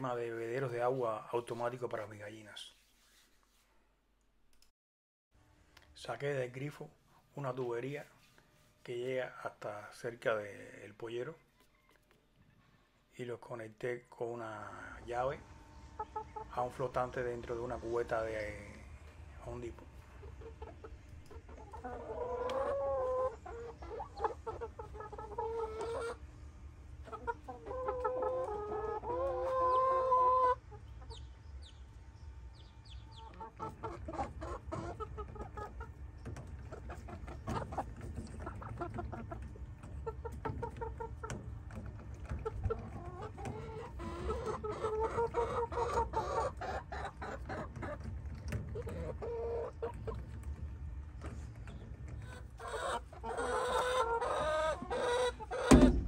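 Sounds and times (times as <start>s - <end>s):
hens clucking: 14.4s - 56.0s.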